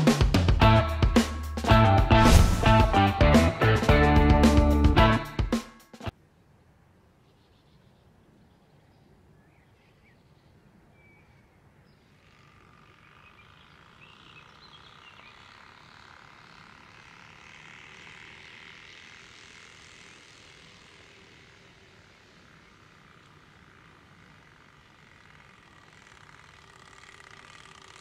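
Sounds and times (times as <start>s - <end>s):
card flapping on bicycle spokes: 15.4s - 28.0s.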